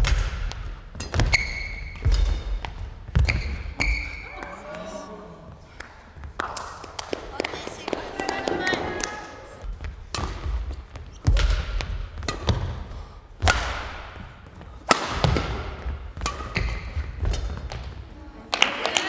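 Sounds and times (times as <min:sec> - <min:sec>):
rackets striking shuttlecock: 0:09.7 - 0:17.9.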